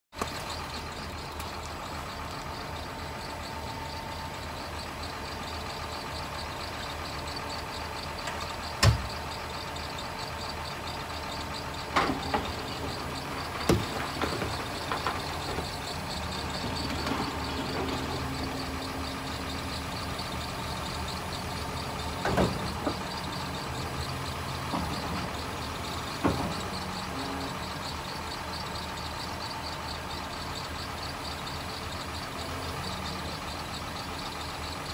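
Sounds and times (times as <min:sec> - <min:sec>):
diesel engine idling: 0:00.1 - 0:34.9
fast light ticking: 0:00.2 - 0:34.9
sharp knocks and clunks: 0:08.2 - 0:09.2, 0:11.8 - 0:18.8, 0:22.0 - 0:27.4.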